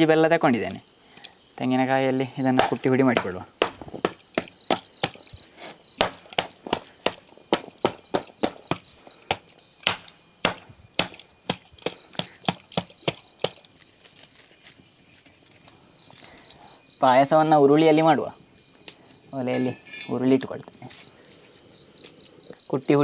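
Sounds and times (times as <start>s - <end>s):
insect chirping: 0.0s - 23.0s
coconut pounding jaggery: 2.2s - 13.7s.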